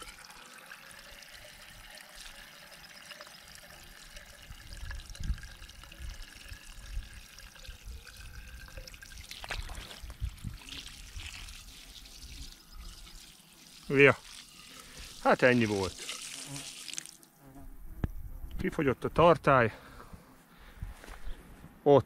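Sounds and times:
water trickling from hose: 0.0 - 17.4.

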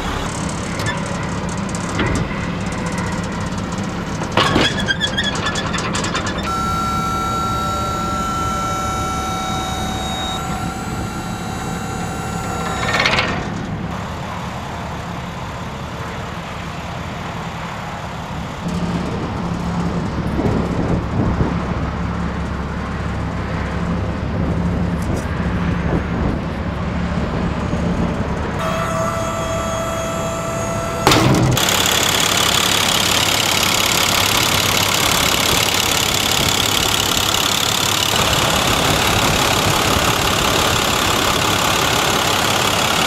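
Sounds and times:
short hydraulic rush: 0.0 - 1.2
hydraulic pump motor whine: 0.0 - 15.8, 28.6 - 43.0
truck engine idling: 0.0 - 17.1, 28.3 - 43.0.

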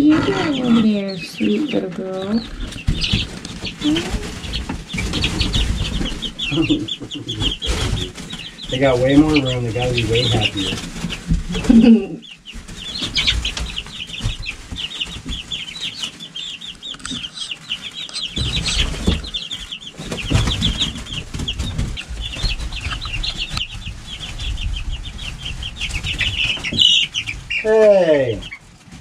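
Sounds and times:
chicks peeping: 0.0 - 29.0
wings flapping: 0.0 - 29.0.

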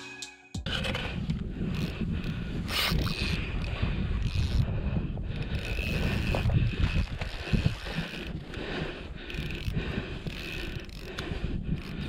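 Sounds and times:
wind rumbling on microphone: 0.7 - 12.0
fishing reel cranking: 1.6 - 12.0.

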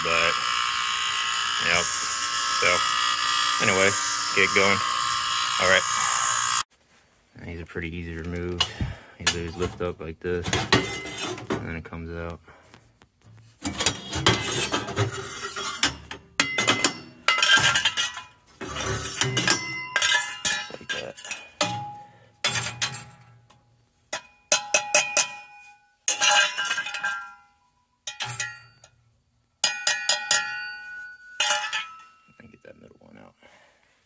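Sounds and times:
metal tubes clanking: 8.4 - 11.8, 13.6 - 23.5, 24.1 - 29.0, 29.6 - 33.0.

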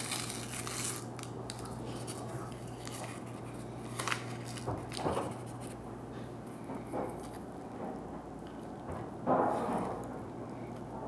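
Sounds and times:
paper packet tearing and crinkling: 0.0 - 5.8.

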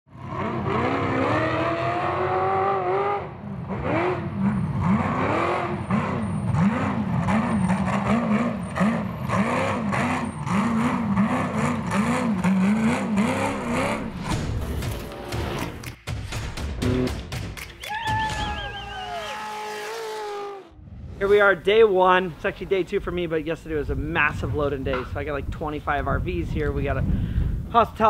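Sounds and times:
race car engine revving: 0.1 - 15.9.

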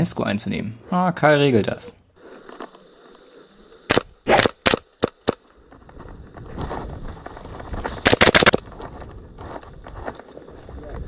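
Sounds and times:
airsoft gun shots: 3.9 - 5.4, 7.9 - 8.6.

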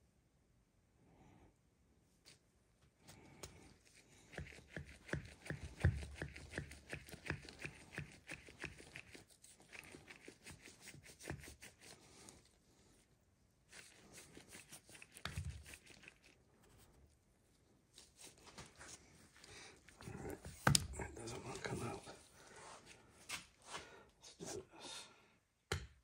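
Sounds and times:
rustling: 7.4 - 23.9.

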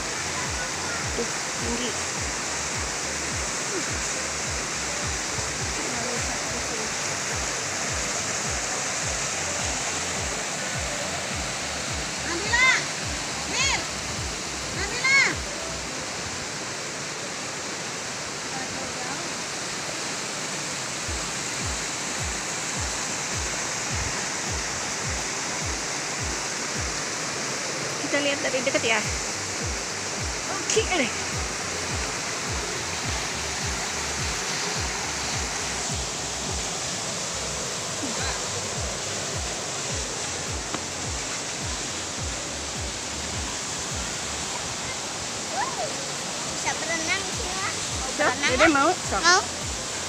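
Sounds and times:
waterfall rushing: 0.0 - 50.0
low thudding music beat: 7.4 - 15.4, 21.1 - 27.0, 28.7 - 44.5.

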